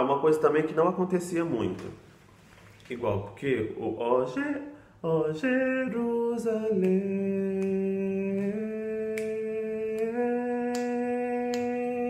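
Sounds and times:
man singing a hymn: 3.9s - 12.0s.

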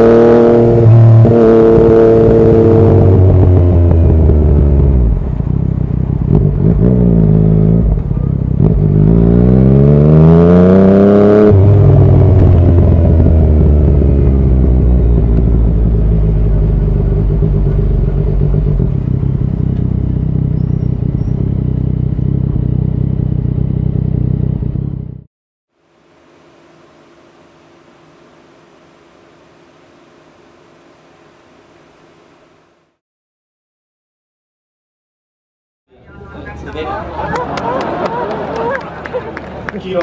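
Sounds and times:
motorcycle engine revving: 0.0s - 25.3s.

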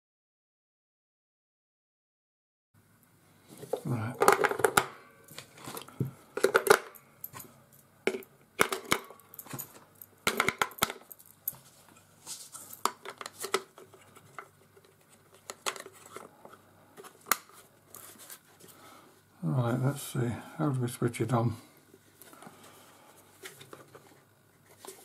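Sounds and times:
radio being handled: 3.6s - 7.5s, 8.1s - 18.7s.

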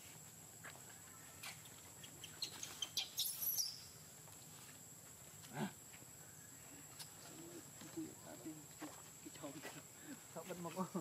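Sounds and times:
animal chirps and squeaks: 1.4s - 4.0s.

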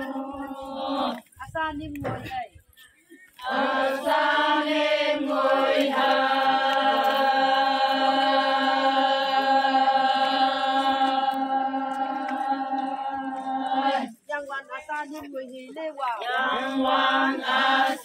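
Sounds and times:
women chanting in unison: 0.0s - 1.3s, 3.4s - 14.4s, 16.1s - 18.0s.

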